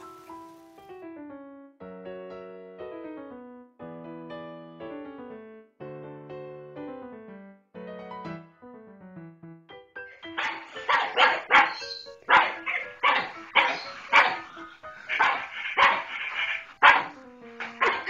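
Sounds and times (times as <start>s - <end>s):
background music: 0.0s - 18.0s
small dog barking: 10.3s - 18.0s.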